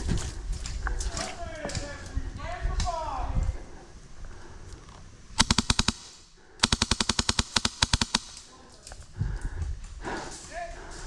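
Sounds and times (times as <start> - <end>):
airsoft rifle full-auto bursts: 5.4 - 8.5.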